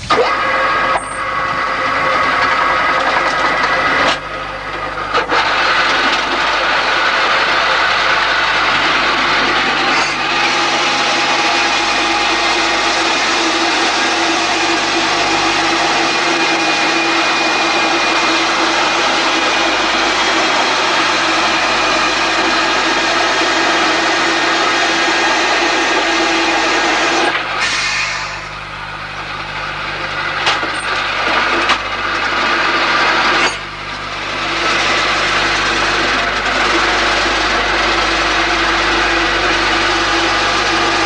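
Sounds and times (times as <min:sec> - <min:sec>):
rock drill boring into rock: 0:00.3 - 0:27.8.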